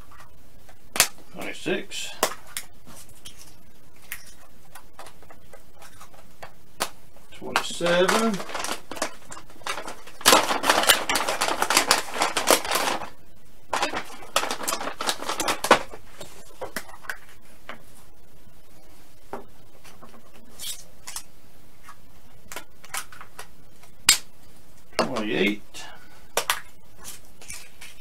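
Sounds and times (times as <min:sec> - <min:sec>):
plastic eggs clicking and tapping: 0:04.1 - 0:17.2
plastic pouch crinkling: 0:06.8 - 0:17.3.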